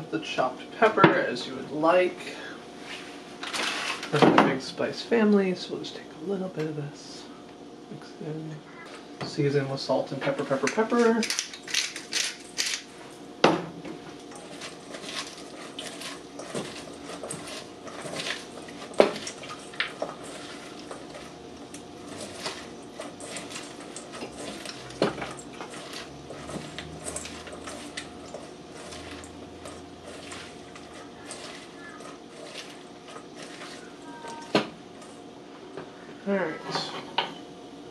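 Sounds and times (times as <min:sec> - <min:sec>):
slaw rustling in a bowl: 0:14.2 - 0:35.3.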